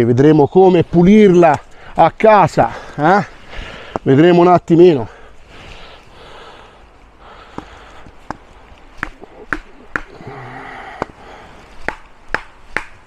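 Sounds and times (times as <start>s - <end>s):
heavy breathing: 1.6s - 4.1s, 5.0s - 12.0s.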